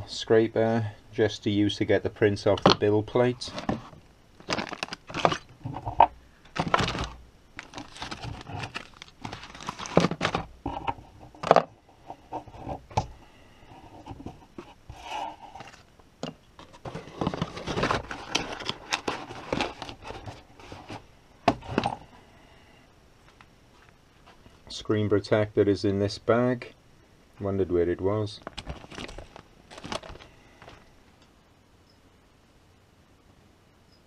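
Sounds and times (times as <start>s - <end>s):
plastic bags rustling: 3.4s - 10.6s, 16.6s - 22.0s, 28.3s - 30.9s
knocks and clatter of accessories: 3.4s - 11.8s, 28.4s - 30.8s.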